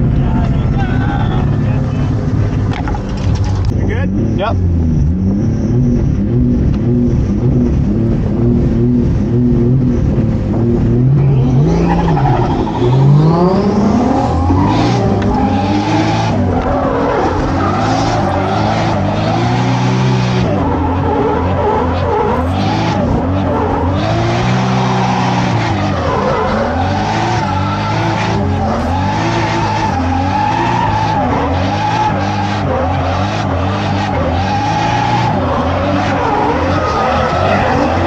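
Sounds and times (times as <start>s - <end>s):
car engine revving: 0.0s - 38.0s
tyres squealing and skidding: 11.0s - 38.0s.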